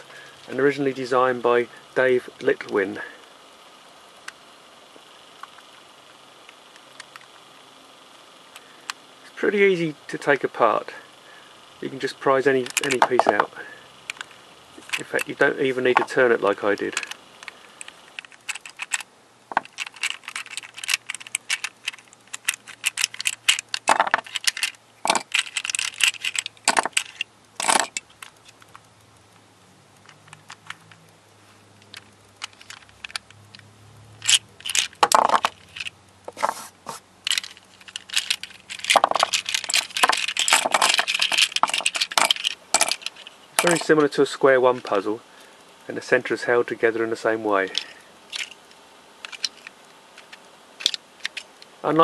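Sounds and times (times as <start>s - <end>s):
plastic puzzle pieces clicking: 12.6s - 13.5s, 14.1s - 28.9s, 30.0s - 31.0s, 31.8s - 36.6s, 37.2s - 44.1s, 47.6s - 51.5s.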